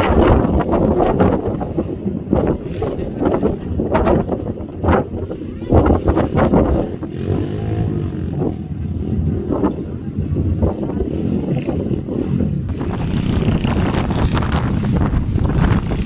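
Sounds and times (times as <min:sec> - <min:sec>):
pit bike engine revving: 0:05.7 - 0:09.6, 0:11.1 - 0:16.0.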